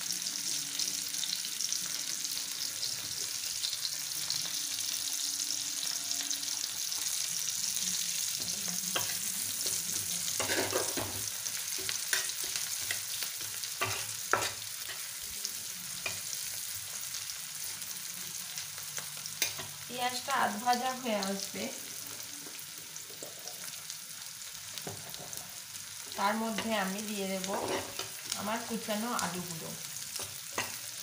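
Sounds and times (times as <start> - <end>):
onions sizzling in hot oil: 0.0 - 31.0
metal spatula scraping a pan: 8.4 - 15.3, 27.4 - 28.4.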